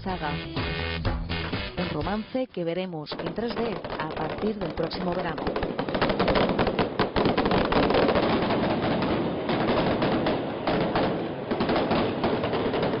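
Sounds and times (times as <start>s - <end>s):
dense crackle of sharp clicks: 3.2s - 13.0s.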